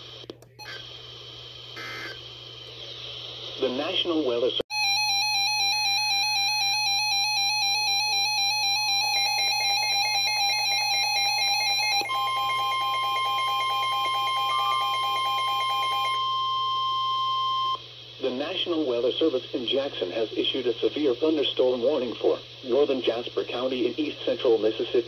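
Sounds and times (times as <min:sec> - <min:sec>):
repeating electronic alarm: 0:04.7 - 0:17.8
steady warning tone: 0:04.7 - 0:17.8.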